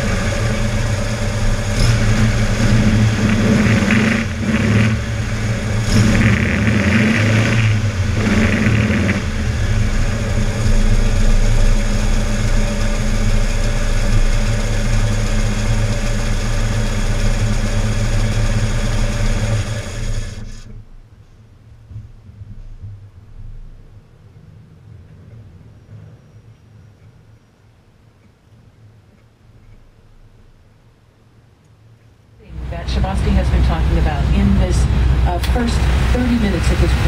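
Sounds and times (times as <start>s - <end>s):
car engine revving and idling: 0.0s - 20.9s, 32.4s - 37.0s.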